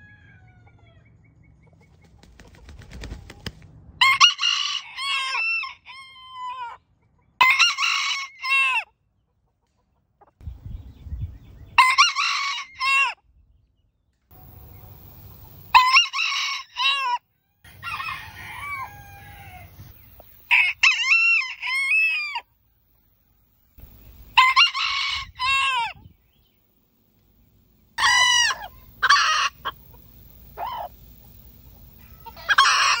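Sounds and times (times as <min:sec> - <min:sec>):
roosters crowing: 0:00.0 - 0:01.2, 0:04.0 - 0:06.8, 0:07.4 - 0:08.9, 0:11.7 - 0:13.2, 0:14.4 - 0:22.5, 0:23.8 - 0:26.6, 0:27.7 - 0:33.0.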